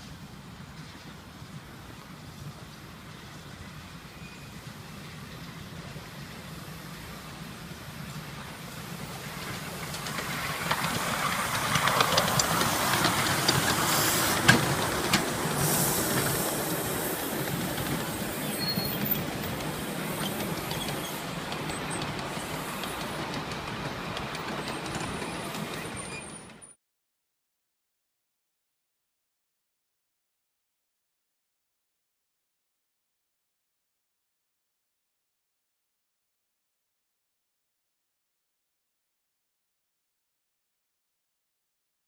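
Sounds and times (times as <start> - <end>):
miniature steam train passing: 0.0 - 26.8
wheels clicking over rail joints: 8.0 - 26.8.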